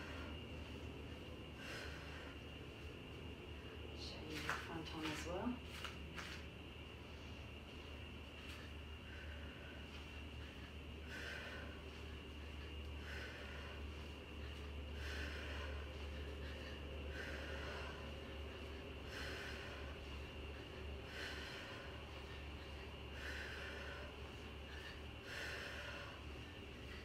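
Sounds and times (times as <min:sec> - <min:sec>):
woman breathing sharply: 0:00.0 - 0:02.9, 0:08.3 - 0:27.0.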